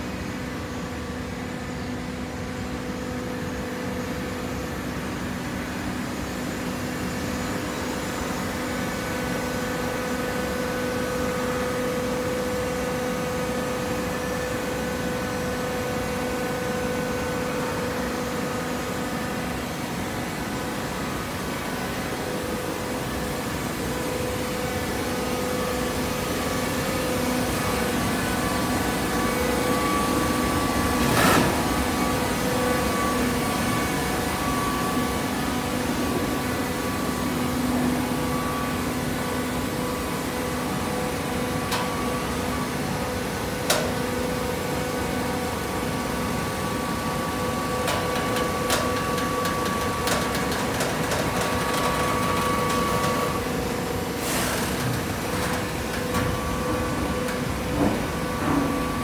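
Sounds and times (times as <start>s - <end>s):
hydraulic baler humming: 7.1s - 59.0s.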